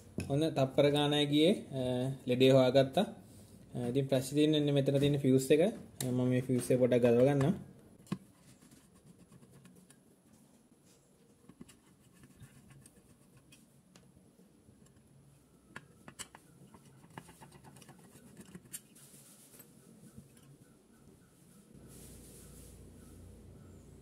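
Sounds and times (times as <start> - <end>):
screwdriver scraping and clicking: 15.7 - 19.0.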